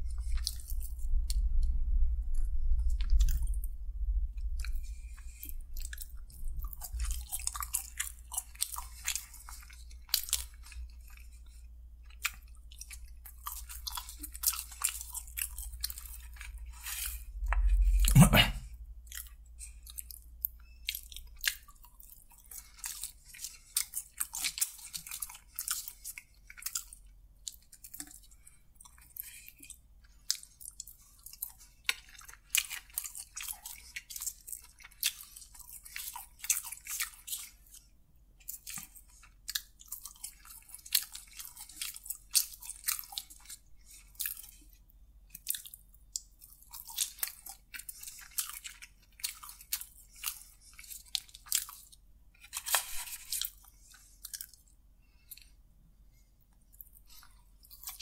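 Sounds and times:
chewing crispy fried chicken: 0:00.0 - 0:58.0.

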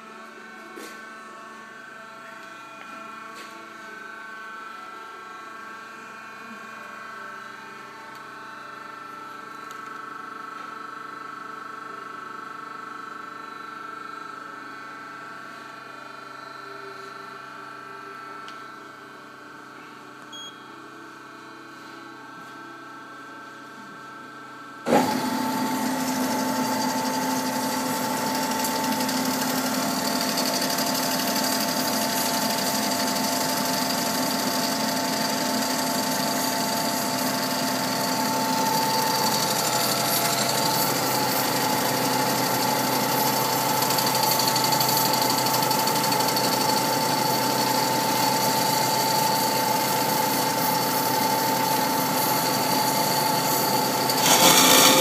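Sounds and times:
bandsaw whining: 0:24.9 - 0:32.3, 0:51.8 - 0:55.0.

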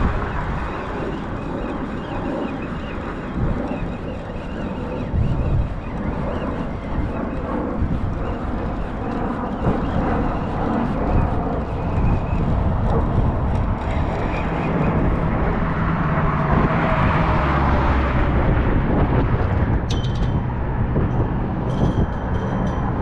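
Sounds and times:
deep engine rumble: 0:00.0 - 0:23.0
wind on microphone: 0:00.0 - 0:23.0
traffic crossing a bridge: 0:12.7 - 0:23.0.

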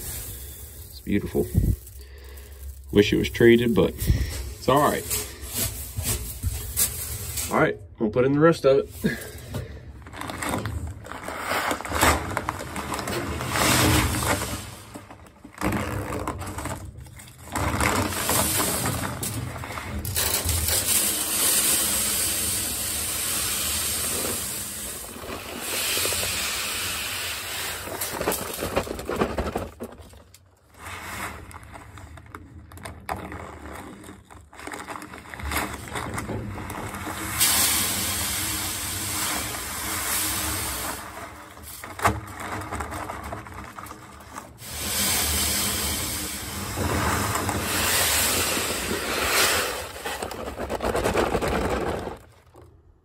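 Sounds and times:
seed pouring into hopper: 0:00.0 - 0:07.7, 0:08.7 - 0:52.8.

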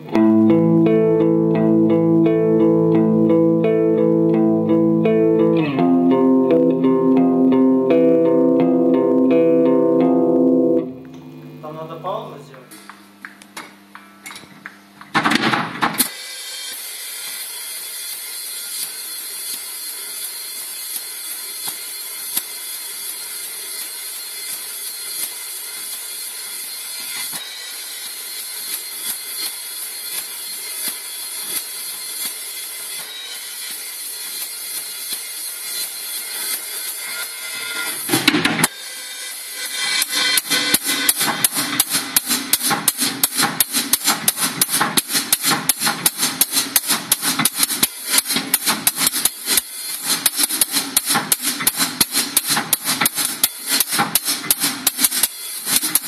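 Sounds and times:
cymbal crash: 0:36.9 - 0:45.2
fast run of drum strikes: 0:37.9 - 0:56.0
shimmering cymbal wash: 0:38.7 - 0:42.2.

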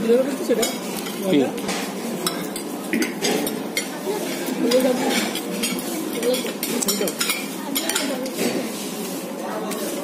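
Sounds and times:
murmured chatter: 0:00.0 - 0:10.0
cutlery clinking on ceramic plates: 0:00.5 - 0:08.7.

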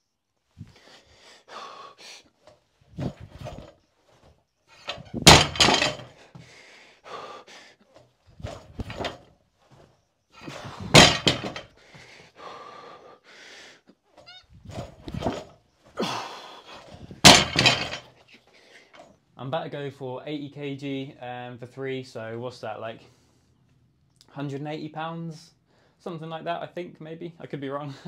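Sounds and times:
barbell knocks: 0:04.9 - 0:06.1, 0:08.5 - 0:09.2, 0:10.8 - 0:11.6, 0:17.2 - 0:18.0
barbell thudding onto rubber mat: 0:04.9 - 0:06.1, 0:08.5 - 0:09.2, 0:10.6 - 0:11.6, 0:14.8 - 0:15.5, 0:17.3 - 0:18.0.

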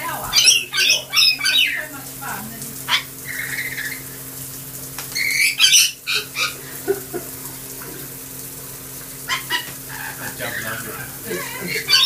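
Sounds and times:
lorikeet squawking: 0:00.1 - 0:02.1, 0:02.9 - 0:04.1, 0:05.2 - 0:06.6, 0:09.3 - 0:12.0
soft bird calls: 0:05.1 - 0:06.6.

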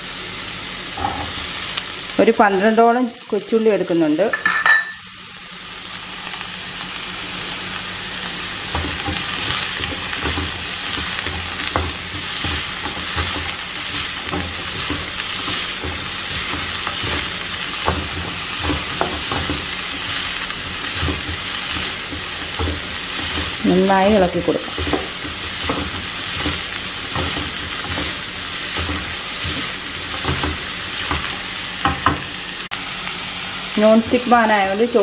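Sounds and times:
onions sizzling in a pan: 0:00.0 - 0:35.0
wooden spatula scraping a pan: 0:08.6 - 0:32.3.

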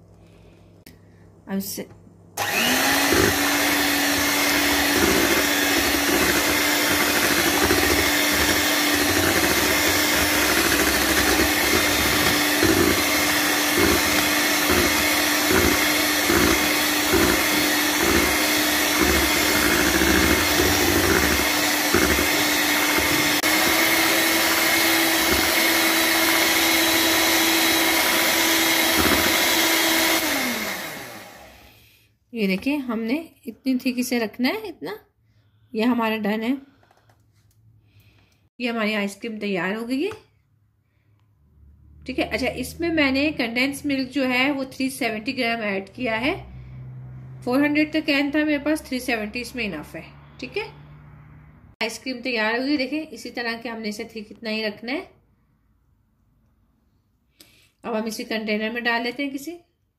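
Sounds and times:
electric hand mixer running: 0:02.4 - 0:31.8.

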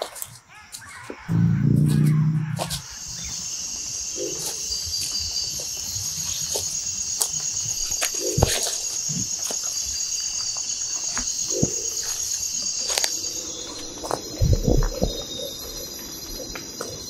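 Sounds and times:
insects chirring: 0:00.0 - 0:17.0
loud low hum: 0:01.3 - 0:03.3.

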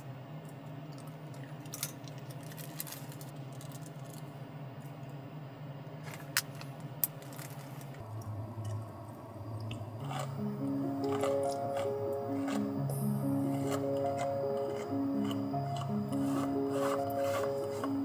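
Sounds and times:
low hum: 0:08.0 - 0:18.0.

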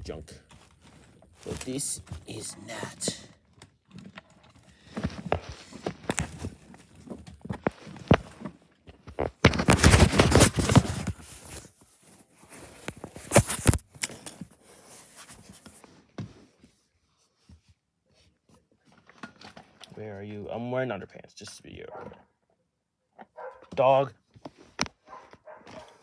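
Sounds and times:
rubbing against microphone: 0:04.8 - 0:13.8, 0:14.5 - 0:18.6.

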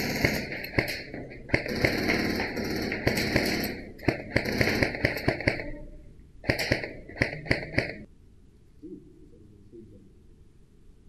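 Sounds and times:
airsoft rifle firing: 0:00.0 - 0:05.8, 0:06.4 - 0:08.1.

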